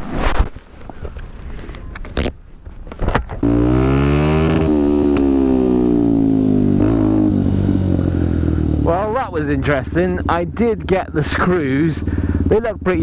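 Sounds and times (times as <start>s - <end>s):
motorcycle engine pulling away: 3.4s - 12.6s.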